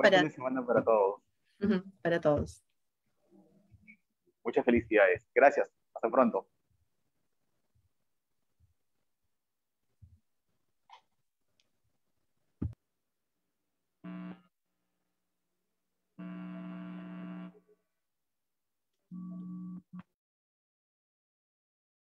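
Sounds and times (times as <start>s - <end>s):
electrical buzz: 14.0s - 14.5s, 16.2s - 17.6s.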